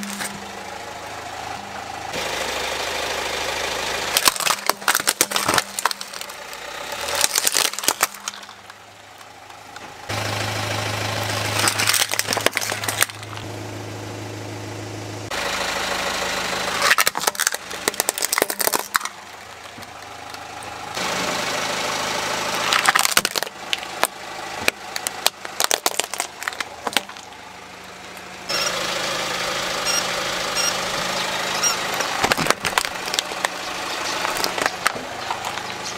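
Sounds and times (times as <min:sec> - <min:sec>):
tyre crushing plastic toys: 0:00.0 - 0:00.4, 0:04.1 - 0:09.3, 0:11.4 - 0:13.5, 0:16.8 - 0:20.4, 0:22.7 - 0:27.3, 0:32.0 - 0:35.8
car engine idling: 0:00.0 - 0:35.9.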